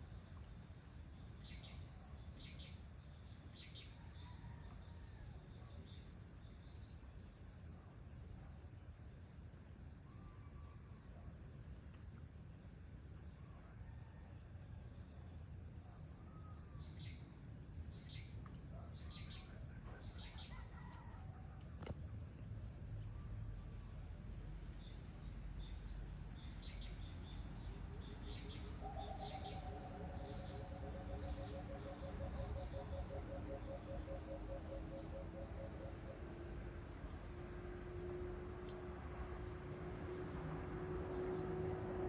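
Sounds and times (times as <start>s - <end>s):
bird chirps: 28.1s - 36.0s
high-pitched insect drone: 28.3s - 36.6s.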